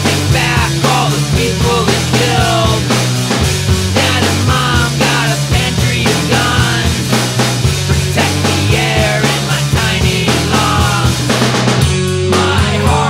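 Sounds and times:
rock band playing: 0.0 - 13.0
woman singing: 0.1 - 3.0, 4.0 - 7.2, 8.0 - 11.3, 12.3 - 13.0.

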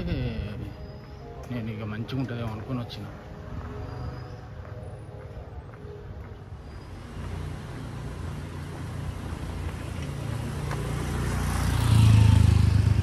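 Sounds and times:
vehicle engine passing: 6.9 - 13.0.

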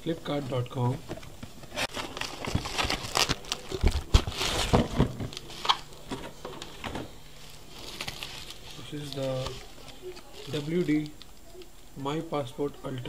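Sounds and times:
bubble wrap crinkling: 1.7 - 11.9.

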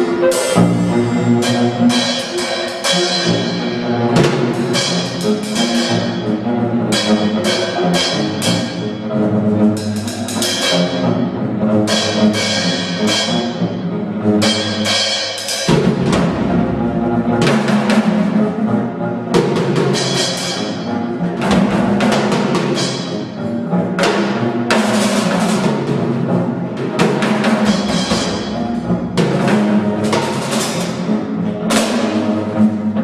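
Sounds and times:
bowed electric bass notes: 0.0 - 2.2, 15.7 - 19.4
drum kit and cymbal strikes: 0.0 - 6.0, 9.8 - 10.9, 14.4 - 16.6.

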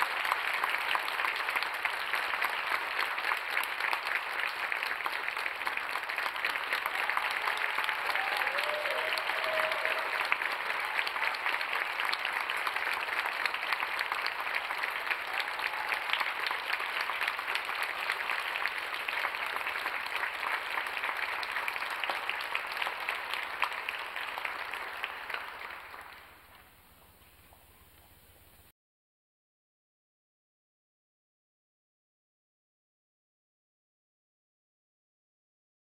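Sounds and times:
audience applauding: 0.0 - 28.0.

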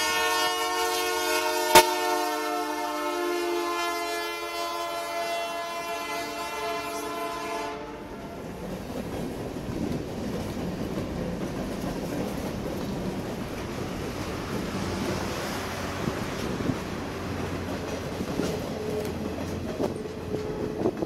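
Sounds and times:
locomotive air horn: 0.0 - 8.4, 19.9 - 21.0
freight cars rumbling and clattering: 8.4 - 21.0.

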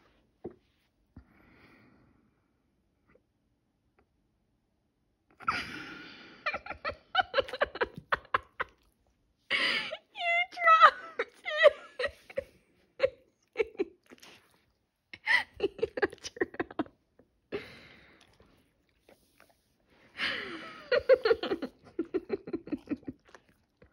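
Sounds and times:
person speaking: 9.6 - 13.8.

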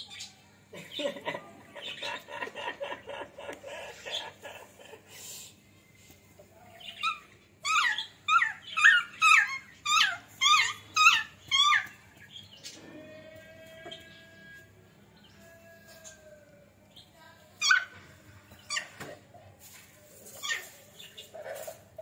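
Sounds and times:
puppy yelping: 7.0 - 12.0.

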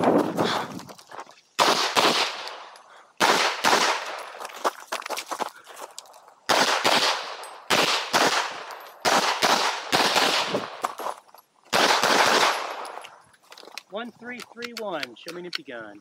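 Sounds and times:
pistol shots: 1.6 - 4.3, 6.5 - 10.9, 11.7 - 13.0.

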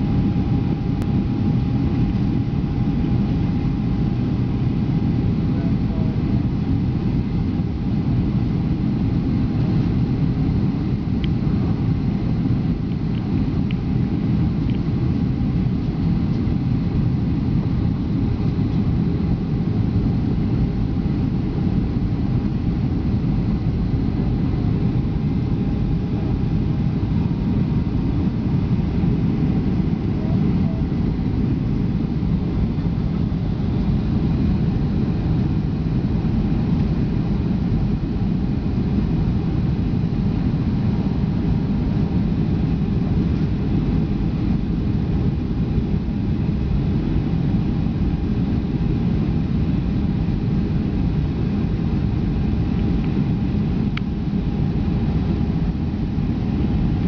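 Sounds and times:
jet engine rumble in cabin: 0.0 - 57.0
faint steady tone: 22.8 - 37.8.

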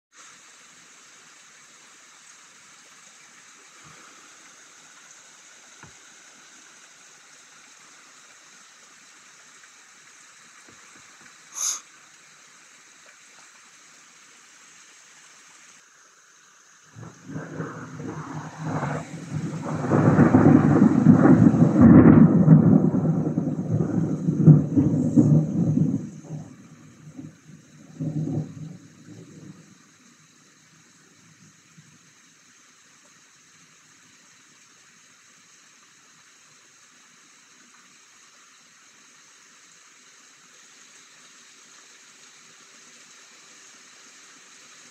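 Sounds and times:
rain hissing: 0.1 - 44.9
thunder rolling: 17.0 - 29.7.

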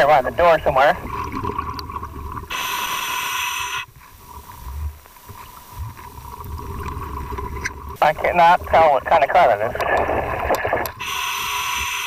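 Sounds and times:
hissing regulator inhalation: 2.5 - 4.0, 9.8 - 12.0
bubbling exhalation rumble: 8.7 - 11.2.

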